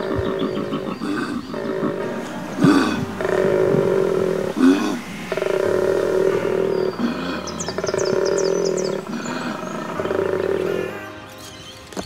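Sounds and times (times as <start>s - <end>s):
koala bellowing: 0.0s - 11.2s
bird chirping: 0.0s - 12.0s
in-breath sounds: 0.7s - 10.3s.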